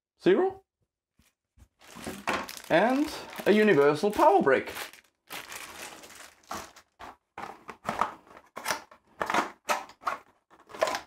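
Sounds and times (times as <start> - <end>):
plastic bag crinkling: 1.8 - 7.2.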